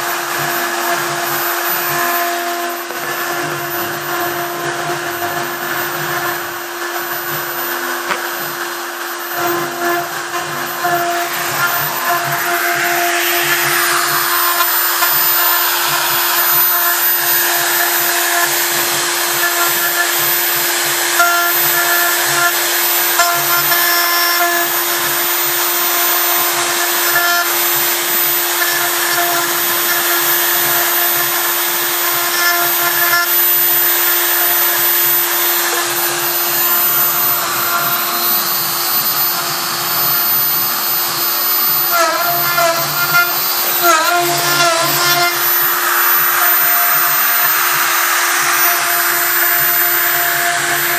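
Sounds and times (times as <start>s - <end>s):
router bit carving wood: 0.0s - 50.9s
router whining: 0.0s - 50.9s.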